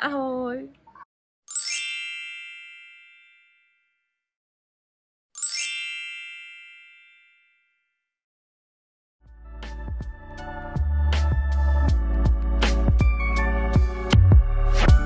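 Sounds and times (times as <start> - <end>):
bright chime ringing: 1.5 - 3.8, 5.4 - 7.6.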